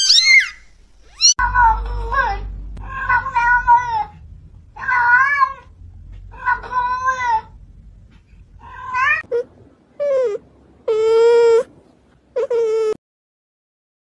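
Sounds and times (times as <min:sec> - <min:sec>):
cat meowing: 0:00.0 - 0:04.2, 0:04.8 - 0:05.7, 0:08.6 - 0:09.3.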